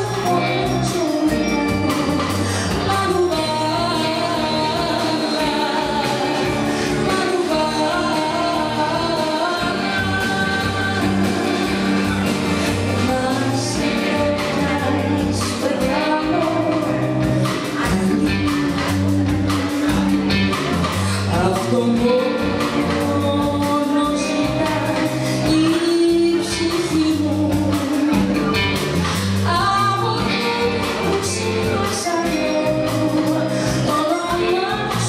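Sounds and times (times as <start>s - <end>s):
live band playing: 0.0s - 35.0s
woman singing: 0.0s - 35.0s.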